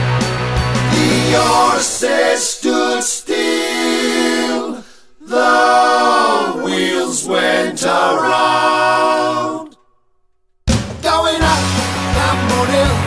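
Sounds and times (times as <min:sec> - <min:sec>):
band playing: 0:00.0 - 0:02.3, 0:11.0 - 0:13.0
voices singing in harmony: 0:00.8 - 0:10.0.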